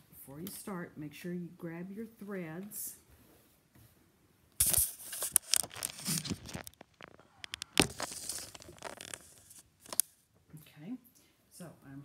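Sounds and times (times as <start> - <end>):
phone handling noise: 4.6 - 10.1
sharp clicks and knocks: 4.6 - 10.1.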